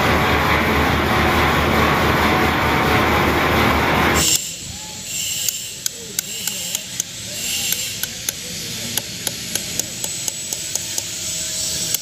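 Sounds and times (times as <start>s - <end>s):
hammer tapping chisel into stone: 9.0s - 11.1s.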